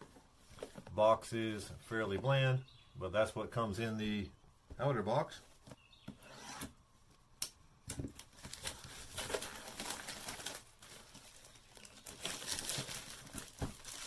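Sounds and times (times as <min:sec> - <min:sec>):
plastic wrap crinkling: 0:08.2 - 0:14.0.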